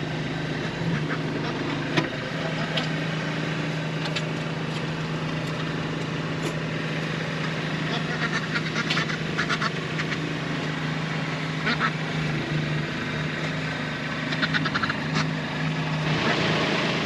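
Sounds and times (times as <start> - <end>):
tractor diesel engine running: 0.0 - 17.0
ducks quacking: 0.8 - 2.9, 7.8 - 10.3, 11.6 - 12.0, 14.3 - 15.4.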